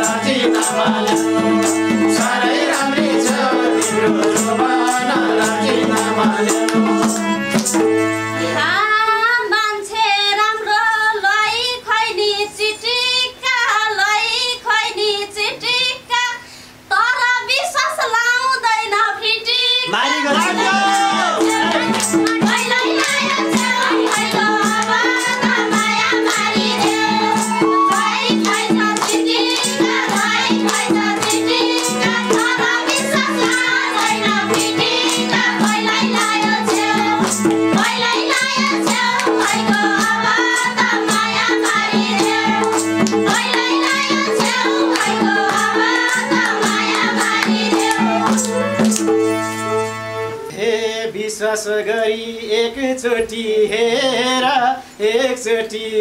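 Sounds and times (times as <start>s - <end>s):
women singing: 0.0s - 7.3s, 8.4s - 49.0s
hand drum beating: 0.0s - 8.0s, 20.3s - 49.3s
harmonium melody: 0.0s - 9.9s, 19.9s - 51.0s
people clapping: 6.0s - 7.8s, 20.2s - 40.9s, 41.6s - 49.2s
bamboo flute melody: 27.1s - 28.3s, 47.9s - 50.6s.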